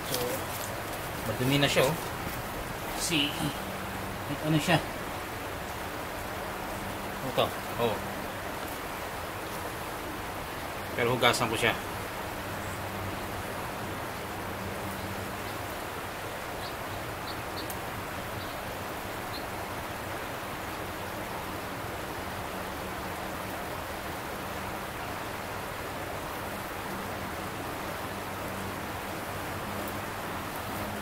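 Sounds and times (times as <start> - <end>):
stream rushing: 0.0 - 31.0
small ticks: 16.6 - 17.8.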